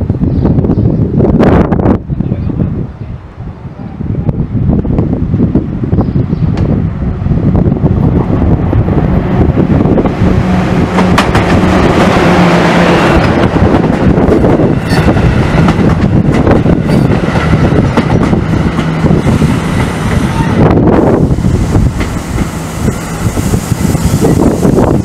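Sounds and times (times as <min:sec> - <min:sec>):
train passing with rumble: 0:00.0 - 0:25.0.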